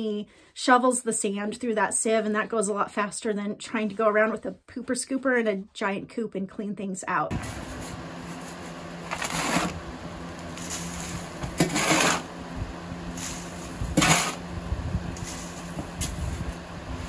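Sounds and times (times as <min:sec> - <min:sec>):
sand shoveled onto metal mesh: 0:07.3 - 0:09.8, 0:10.4 - 0:12.4, 0:13.0 - 0:17.0
box fan humming: 0:07.3 - 0:17.0.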